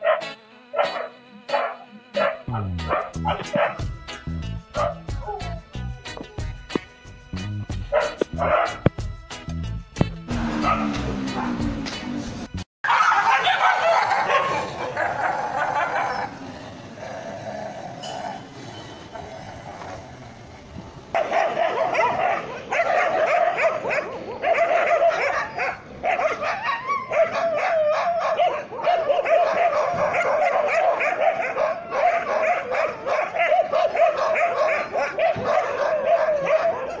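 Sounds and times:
dog yelping high-pitched: 0.0 - 3.8, 8.0 - 8.8, 12.8 - 16.4, 21.2 - 37.0
dogs fighting and barking: 0.0 - 4.0, 4.7 - 6.4, 7.8 - 8.9, 10.4 - 12.2, 12.8 - 20.4, 21.1 - 37.0.

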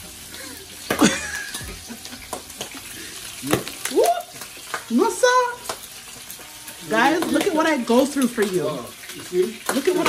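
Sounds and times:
meat sizzling in oil: 0.0 - 10.0
person exclaiming: 3.4 - 4.4.

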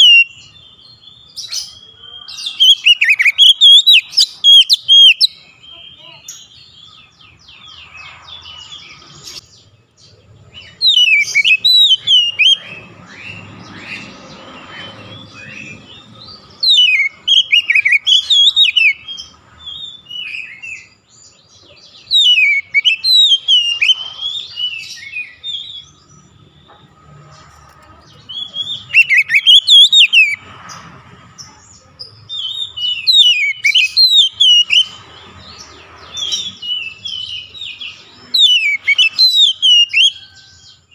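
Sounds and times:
bird singing whistled phrases: 0.0 - 5.7, 10.6 - 13.5, 16.5 - 21.0, 22.1 - 25.9, 28.3 - 30.4, 32.3 - 35.0, 36.2 - 40.4
bird twittering: 0.0 - 21.0, 21.9 - 26.8, 28.1 - 30.4, 32.3 - 40.8.

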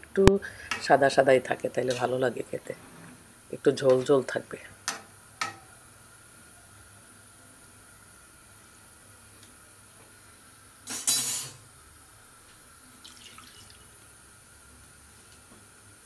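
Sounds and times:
faint steady hum: 0.0 - 16.0
running water splash: 13.0 - 13.9.

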